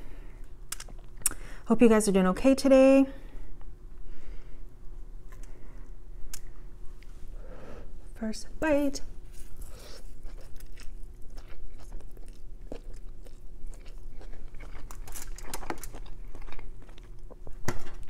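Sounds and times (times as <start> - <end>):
faint steady hum: 0.0 - 18.0
person chewing noodles: 9.4 - 17.6.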